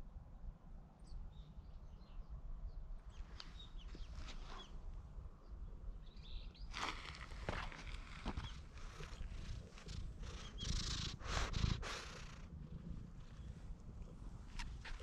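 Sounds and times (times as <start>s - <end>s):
small birds chirping: 3.1s - 4.8s, 5.4s - 15.0s
low outdoor rumble: 6.8s - 15.0s.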